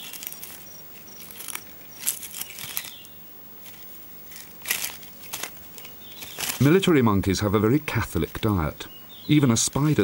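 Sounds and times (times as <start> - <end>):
monkey crunching thorny twigs: 0.0 - 3.1, 3.7 - 6.8.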